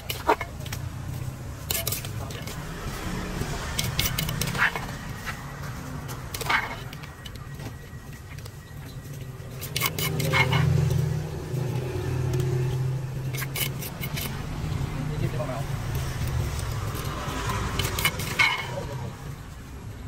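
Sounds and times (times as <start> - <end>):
metal spoon on plastic plate: 0.0 - 0.8, 1.6 - 2.6, 3.4 - 5.0, 6.2 - 7.6, 9.1 - 14.9, 15.9 - 19.0
vehicle engine rumbling: 0.0 - 20.0.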